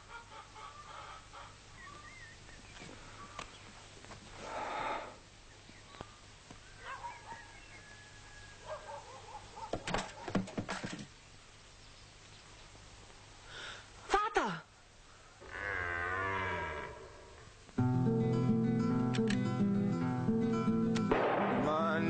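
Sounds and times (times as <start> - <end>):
cluster of knocks: 9.7 - 11.1.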